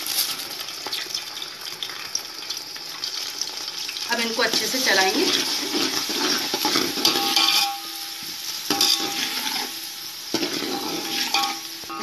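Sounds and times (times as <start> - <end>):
spoon scraping metal pot: 8.7 - 9.7, 10.3 - 12.0.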